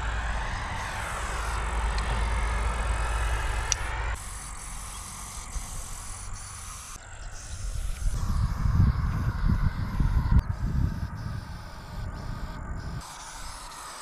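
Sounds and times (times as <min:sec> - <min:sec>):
low rumble: 0:00.0 - 0:13.1
spray paint can hissing: 0:03.3 - 0:14.0.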